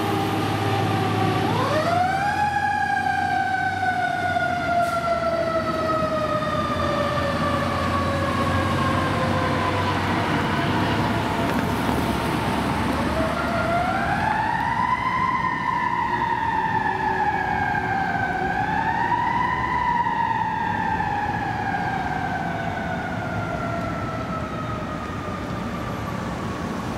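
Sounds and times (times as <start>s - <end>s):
fire truck siren wailing: 0.0s - 26.9s
low city traffic rumble: 0.0s - 26.9s.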